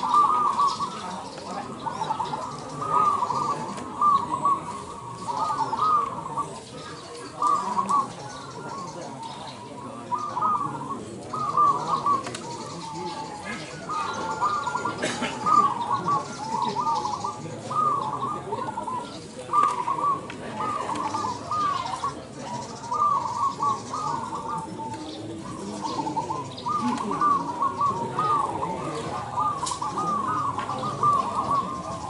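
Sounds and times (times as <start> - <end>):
doves cooing: 0.0 - 32.0
low background noise: 0.0 - 32.0.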